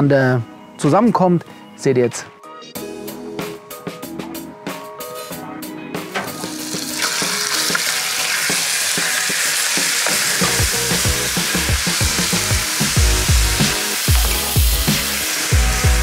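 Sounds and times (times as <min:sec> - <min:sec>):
background music: 0:00.0 - 0:16.0
meat sizzling in hot oil: 0:06.3 - 0:16.0
heavy bass beat: 0:10.4 - 0:16.0.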